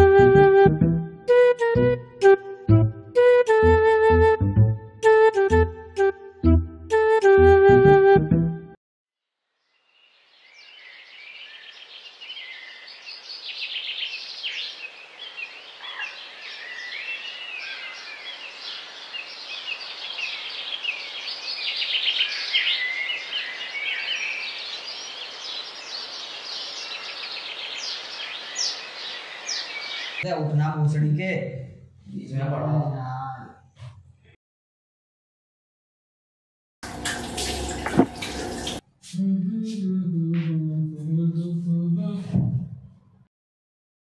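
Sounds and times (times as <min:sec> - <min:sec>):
small birds chirping: 0:10.2 - 0:30.2.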